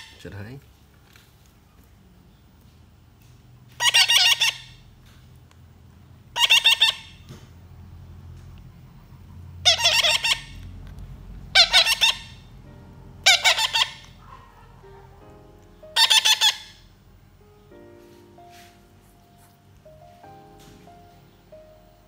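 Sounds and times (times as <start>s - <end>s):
baby parrots squawking: 3.7s - 4.9s, 6.2s - 7.3s, 8.8s - 10.8s, 11.5s - 12.5s, 13.2s - 16.9s.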